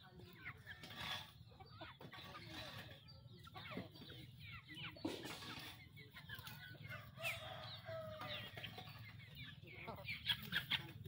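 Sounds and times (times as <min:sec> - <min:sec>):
young chickens peeping and clucking: 0:00.0 - 0:11.0.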